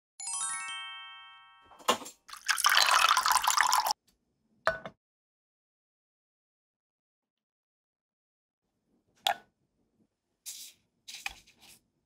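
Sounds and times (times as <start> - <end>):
water pouring into glass cup: 2.3 - 4.0.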